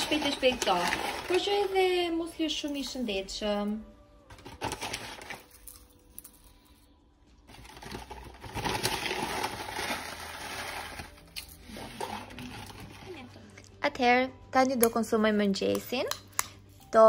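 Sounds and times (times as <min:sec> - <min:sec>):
dry rustle of cereal: 0:00.0 - 0:01.9, 0:07.5 - 0:13.3
metal spoon clicking on bowls: 0:15.7 - 0:16.6.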